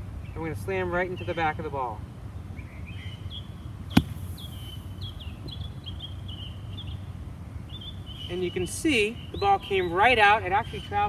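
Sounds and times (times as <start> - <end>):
birds chirping: 2.5 - 11.0
golf club thud into sand: 3.9 - 4.8.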